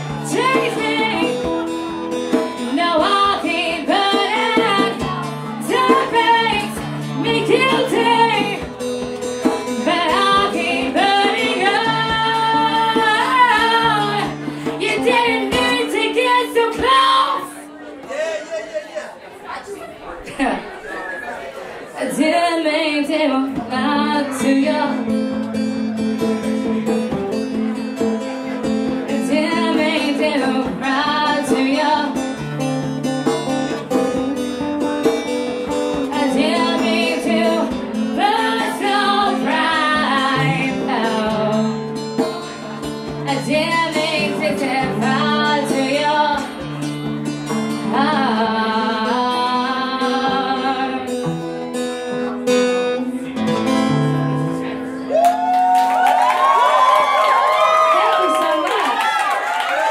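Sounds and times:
woman singing: 0.0 - 1.8, 2.6 - 8.8, 9.7 - 17.7, 22.0 - 25.2, 29.1 - 32.4, 35.9 - 42.0, 43.1 - 46.6, 47.8 - 51.2
acoustic guitar: 0.0 - 19.3, 19.9 - 55.6.

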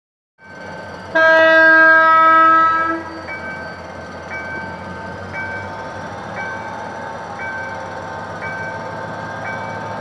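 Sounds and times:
train rumble: 0.4 - 10.0
locomotive air horn: 1.1 - 3.2.

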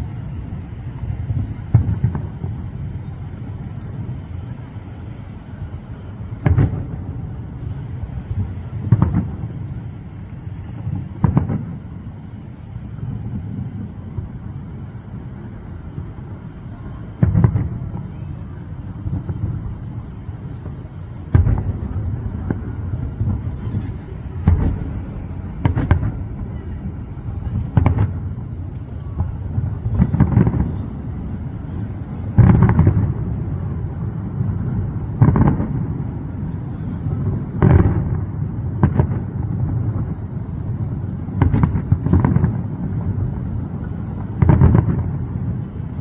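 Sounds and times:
steady low rumble: 0.0 - 46.0
distant firework booms: 1.3 - 3.3, 6.4 - 7.5, 8.3 - 10.0, 10.6 - 12.2, 16.9 - 36.4, 37.0 - 45.9.

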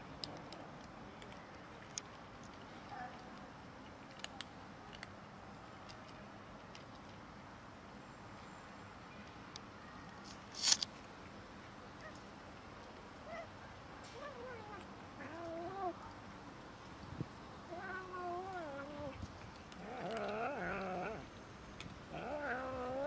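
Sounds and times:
cat yowling and growling: 17.7 - 19.2, 19.8 - 21.3, 22.1 - 23.0.

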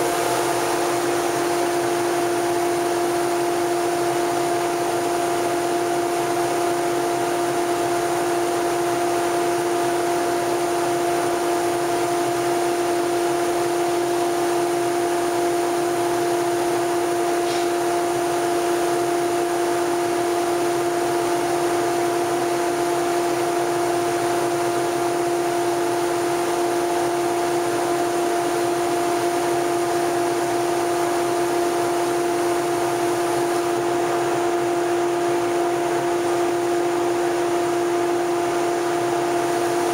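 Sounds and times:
extraction fan drone: 0.0 - 39.9
spray gun hissing: 17.4 - 18.9.

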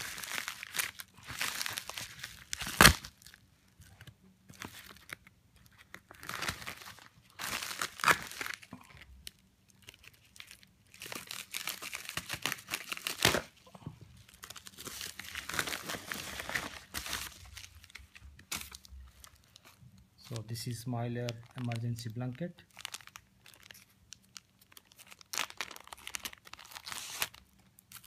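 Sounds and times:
foil blanket crinkling: 0.0 - 8.7, 22.7 - 28.0.

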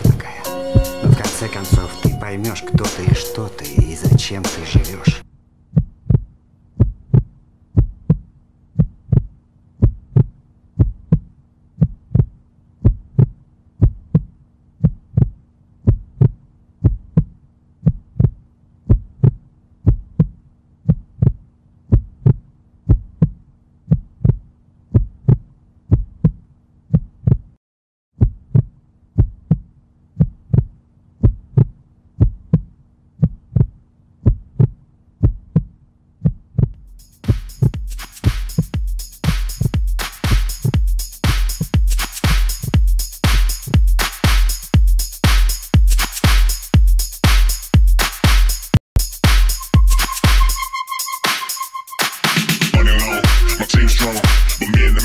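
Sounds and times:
heartbeat thumps: 5.8 - 26.4, 30.2 - 50.7, 52.7 - 55.0.

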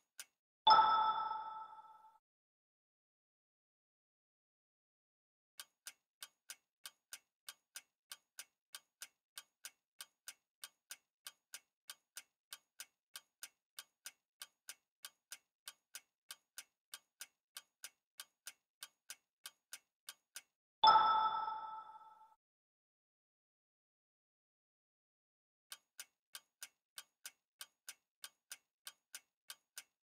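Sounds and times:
clock ticking: 5.6 - 22.1, 25.7 - 30.0.

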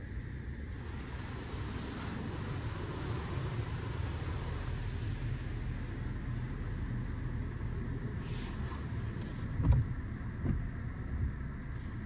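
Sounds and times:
car wash low rumble: 0.0 - 12.0.

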